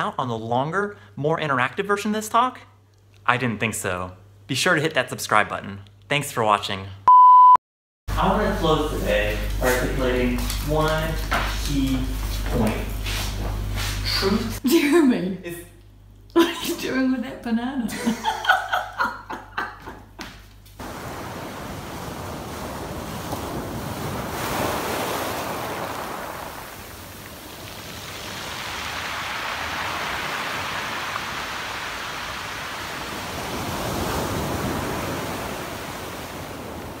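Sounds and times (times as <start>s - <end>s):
sea waves breaking on pebbles: 20.8s - 37.0s.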